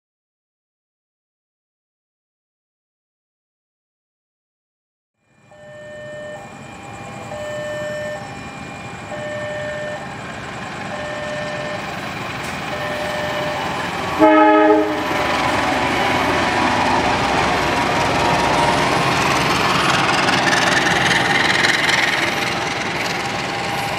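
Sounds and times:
locomotive engine and wheels: 5.2 - 23.9
repeating warning tone: 5.3 - 23.9
train horn blast: 12.7 - 19.1.

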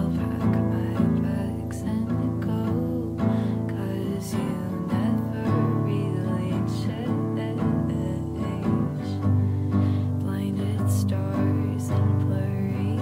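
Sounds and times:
acoustic guitar sustained chords: 0.0 - 13.0.

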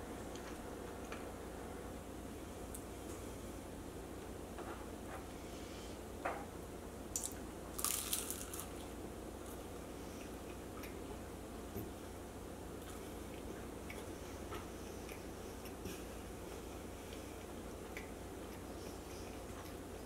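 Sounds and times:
crisp pastry crackles: 7.2 - 8.9
soft mouth-closed chewing: 7.2 - 11.2, 12.8 - 20.0.

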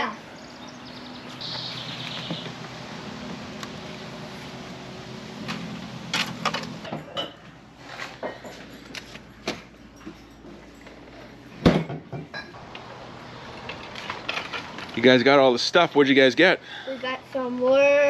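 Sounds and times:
shed door opening: 1.4 - 7.2
knocks clicks and clinks of items: 5.4 - 12.8.

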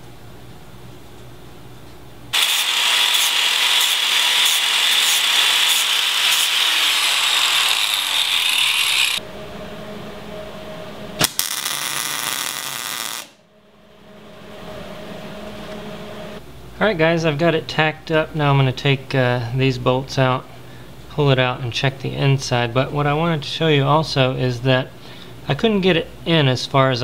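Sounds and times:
welder crackling: 2.3 - 9.2, 11.2 - 13.4
angle grinder grinding steel: 2.4 - 9.2.

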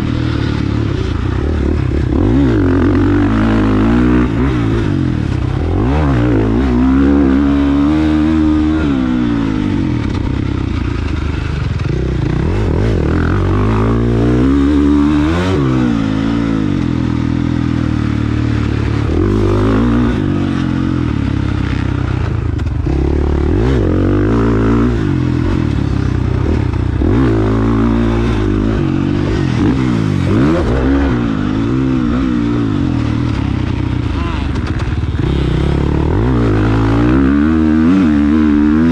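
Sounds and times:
motocross bike engine revving: 0.0 - 38.9
clatter and scraping: 32.9 - 35.9.

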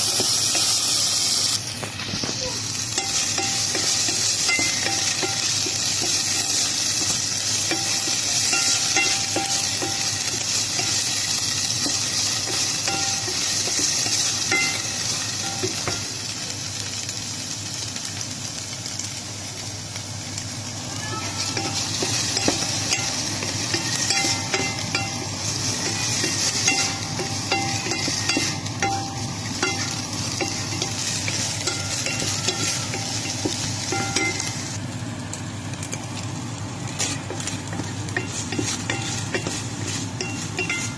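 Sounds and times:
pork sizzling in a pan: 0.0 - 40.9
wooden spatula scraping a pan: 37.0 - 40.9.

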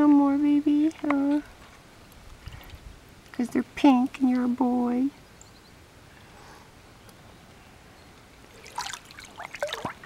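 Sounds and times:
water splashing in paddling pool: 8.5 - 10.0.

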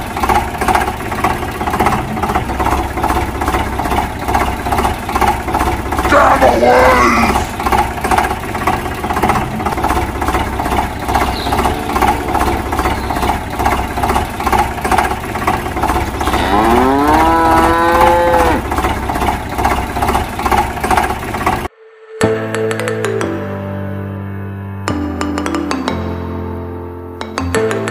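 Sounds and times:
engine chugging: 0.0 - 21.7
cow mooing: 6.1 - 7.5, 11.3 - 13.2, 16.0 - 18.9.

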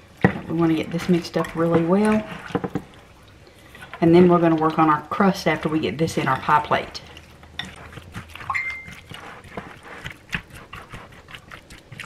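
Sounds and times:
spatula squelching in a glass bowl: 0.6 - 3.0, 3.6 - 12.0
high squeak: 8.5 - 9.0.

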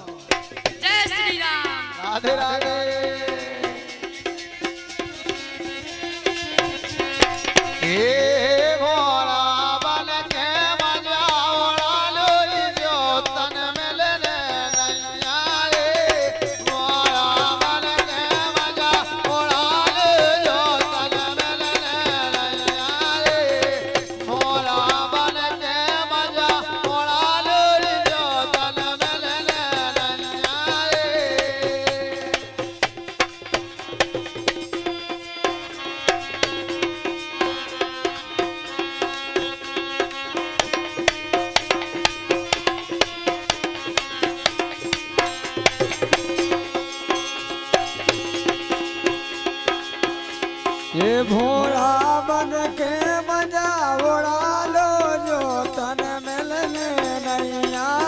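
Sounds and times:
man singing: 0.0 - 4.4, 7.7 - 32.9, 47.2 - 58.0
quick hand drum beats: 0.0 - 9.1, 9.7 - 58.0
harmonium drone: 0.9 - 58.0
small cymbals: 14.5 - 17.5.

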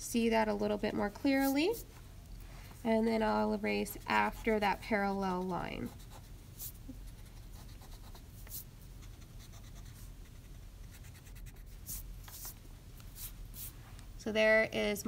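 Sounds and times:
eraser rubbing on paper: 1.3 - 1.9, 3.8 - 8.7.

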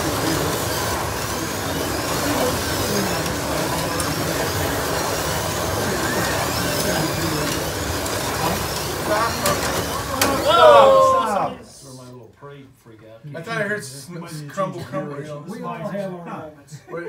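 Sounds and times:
slot car motors whining: 0.0 - 11.5.

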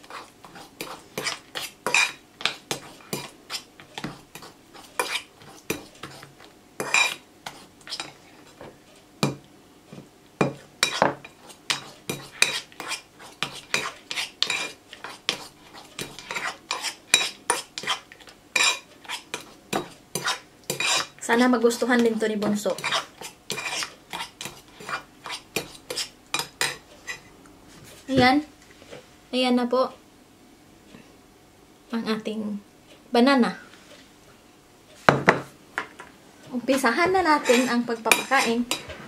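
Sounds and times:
metal spoon scraping ceramic bowl: 0.1 - 8.2, 10.8 - 18.0, 18.6 - 21.1, 22.8 - 27.2, 37.4 - 38.9.

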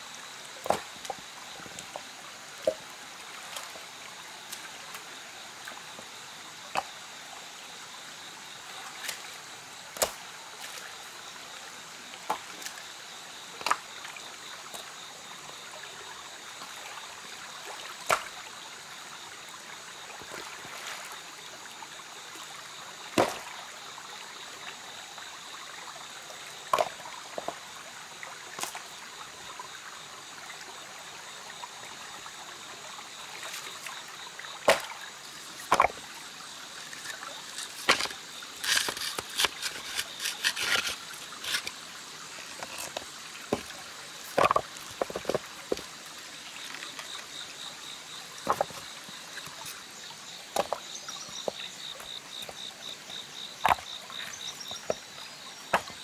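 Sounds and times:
stream trickling over rocks: 0.0 - 56.0
stones clacking together: 35.6 - 36.0, 37.0 - 41.8, 42.5 - 45.9, 48.4 - 49.6, 50.5 - 51.7, 53.6 - 54.0, 54.6 - 55.0, 55.7 - 56.0.

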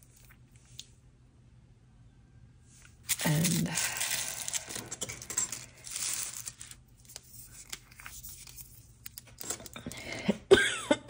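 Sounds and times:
tissue paper rustling: 3.0 - 4.8, 5.5 - 8.8.

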